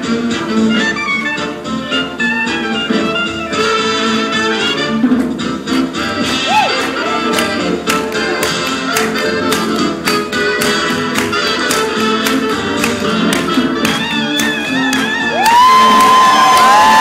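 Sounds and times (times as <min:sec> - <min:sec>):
swing band playing: 0:00.0 - 0:16.8
regular drum hits: 0:05.0 - 0:17.0.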